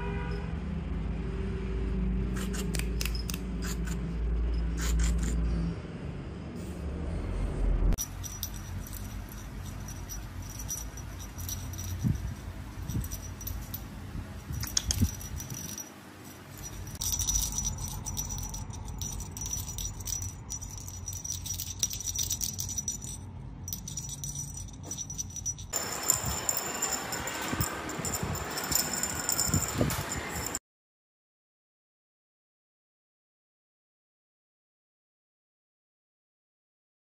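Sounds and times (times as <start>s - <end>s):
cat toy jingling and rattling: 2.4s - 5.4s, 8.0s - 30.6s.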